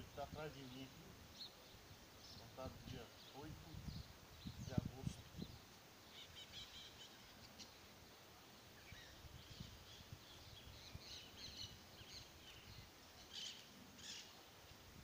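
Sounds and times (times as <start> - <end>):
faint bird chirps: 0.0 - 14.9.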